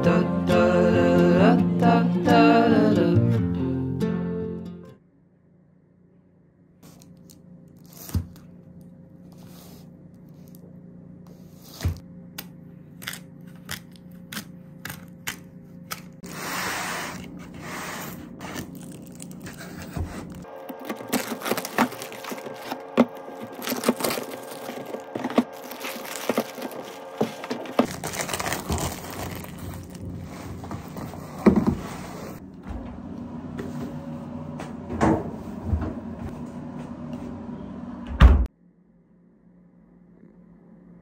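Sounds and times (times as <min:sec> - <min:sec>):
plastic shrink-wrap crinkling and tearing: 0:18.4 - 0:31.2.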